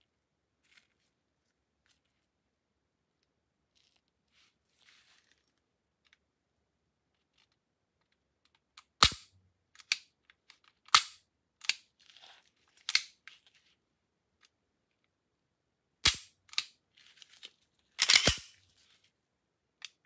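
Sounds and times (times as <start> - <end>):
handling rustle: 0.5 - 2.4, 3.7 - 6.3, 16.9 - 19.2
pistol action clicking: 9.0 - 10.1, 16.0 - 16.8, 18.0 - 18.5.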